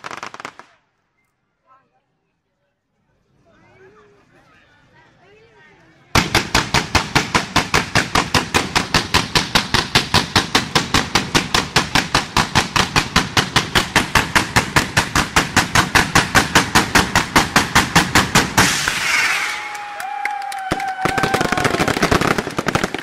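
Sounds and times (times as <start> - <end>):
hissing crackle of fireworks: 0.0 - 0.8, 6.2 - 19.9, 20.6 - 23.0
fireworks shooting in a barrage: 0.0 - 0.9, 6.1 - 19.7, 20.7 - 23.0.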